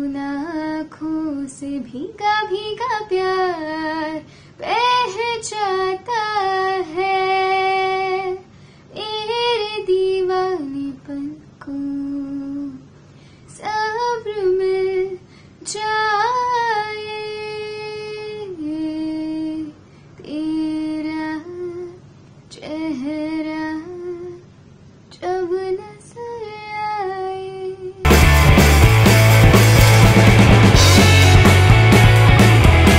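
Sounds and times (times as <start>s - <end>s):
woman singing unaccompanied: 0.0s - 12.9s, 13.5s - 24.5s, 25.1s - 28.1s
loud rock music: 28.1s - 32.9s.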